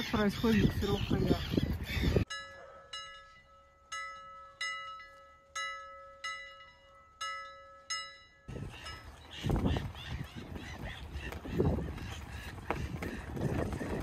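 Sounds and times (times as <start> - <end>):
outdoor noise: 0.0 - 14.0
bell-like struck notes: 2.3 - 9.0.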